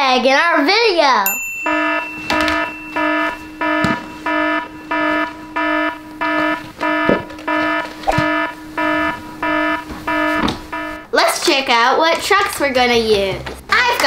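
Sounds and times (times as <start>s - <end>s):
pulsing electronic alarm tone: 1.6s - 11.1s
low hum: 1.8s - 11.1s
soft knocks: 6.3s - 10.8s.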